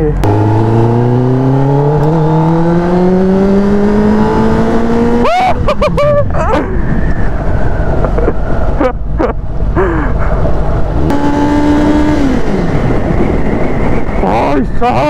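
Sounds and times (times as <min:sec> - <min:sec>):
motorcycle engine revving: 0:00.0 - 0:05.6, 0:10.8 - 0:14.2
wind and road noise: 0:00.0 - 0:15.0.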